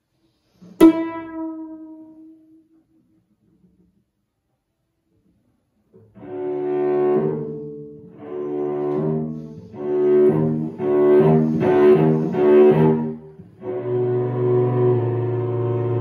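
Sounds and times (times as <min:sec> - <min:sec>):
bowed cello: 0:05.9 - 0:16.0.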